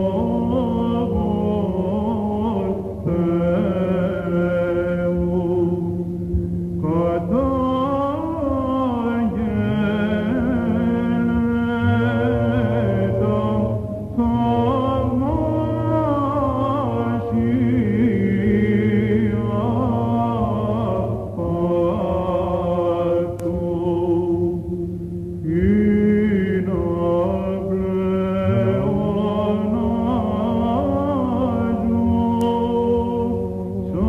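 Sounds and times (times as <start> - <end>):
low vocal drone: 0.0 - 34.0.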